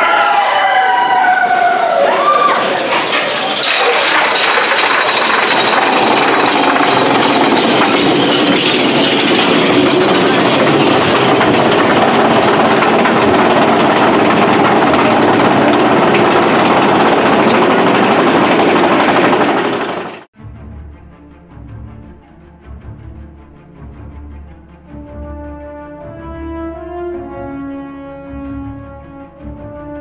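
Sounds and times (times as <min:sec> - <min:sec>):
roller coaster rattling on track: 0:00.0 - 0:20.3.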